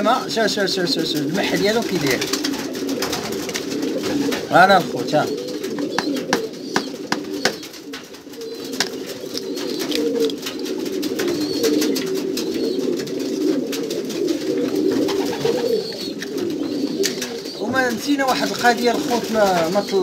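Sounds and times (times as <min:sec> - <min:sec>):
pigeons cooing: 0:00.0 - 0:20.0
sharp clicks: 0:05.8 - 0:10.7.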